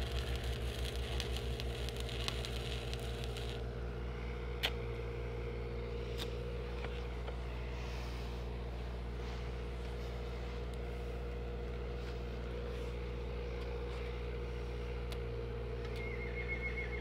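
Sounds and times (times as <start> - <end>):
welding arc crackling: 0.0 - 3.7
welder engine droning: 0.0 - 17.0.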